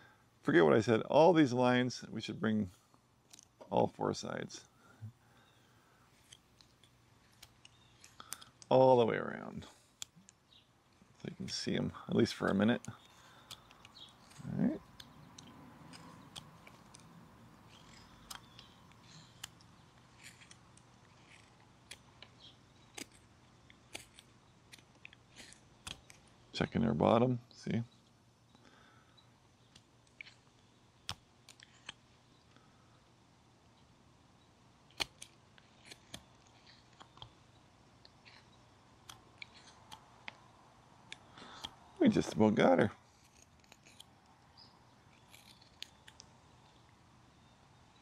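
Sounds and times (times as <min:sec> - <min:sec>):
knife whittling wood: 0:11.4 - 0:26.3
small sharp clicks: 0:12.4 - 0:26.3, 0:29.7 - 0:32.6, 0:43.2 - 0:47.0.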